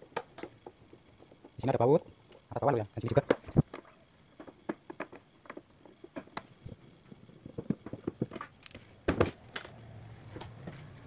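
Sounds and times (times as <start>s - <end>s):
clicks and knocks on plastic: 3.2s - 6.5s, 7.4s - 9.7s.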